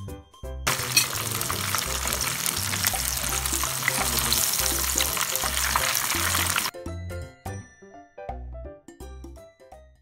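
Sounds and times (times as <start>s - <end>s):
shrimp deep-frying in oil: 0.7s - 6.7s.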